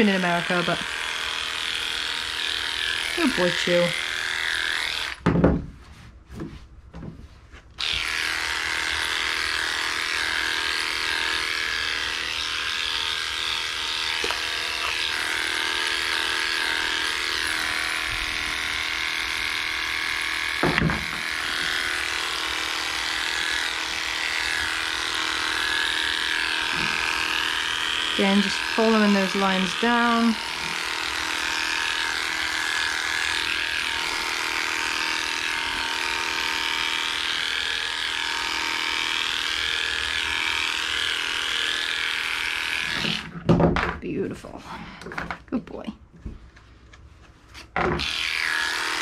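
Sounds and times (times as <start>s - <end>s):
electric clippers whining: 0.0s - 5.3s, 7.8s - 43.5s, 47.6s - 49.0s
loud knock: 5.2s - 5.7s.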